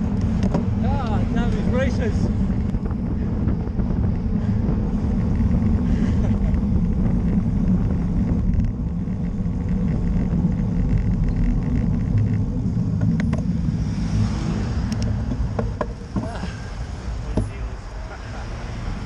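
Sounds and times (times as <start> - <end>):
bike tyres rumbling on tarmac: 0.0 - 19.0
wind rushing over microphone: 0.0 - 19.0.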